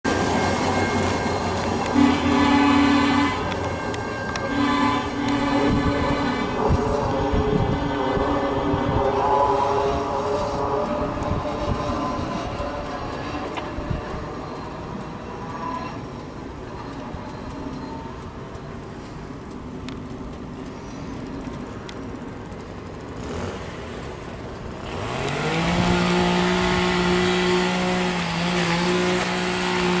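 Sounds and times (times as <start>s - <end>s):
low rumble of truck moving: 0.0s - 30.0s
vehicle engine revving: 1.8s - 15.4s, 22.2s - 30.0s.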